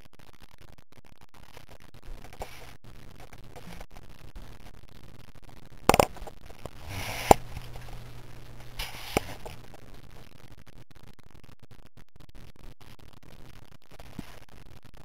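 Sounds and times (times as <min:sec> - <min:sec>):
faint steady hum: 0:00.0 - 0:15.0
camera handling knocks: 0:05.9 - 0:06.2.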